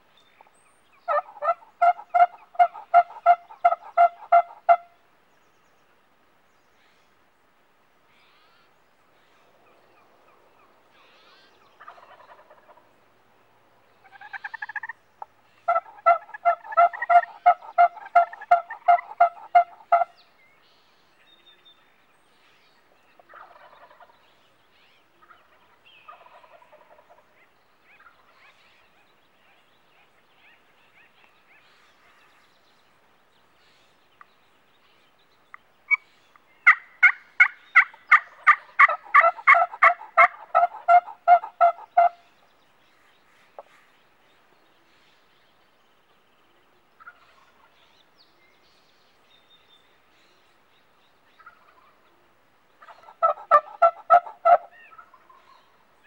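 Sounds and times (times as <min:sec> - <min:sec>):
wild turkey yelping: 0:01.1 - 0:04.9, 0:14.0 - 0:15.0, 0:15.6 - 0:20.1, 0:36.6 - 0:42.2, 0:52.8 - 0:55.7.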